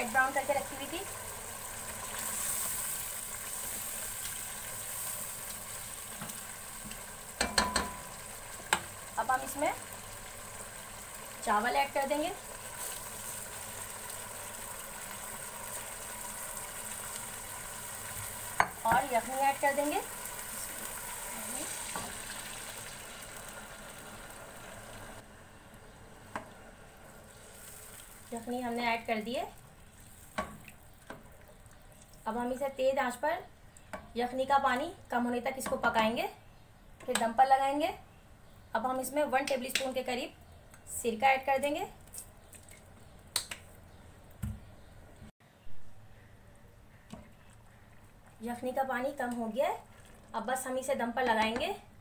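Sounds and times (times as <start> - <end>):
food sizzling in a pot: 0.0 - 31.6.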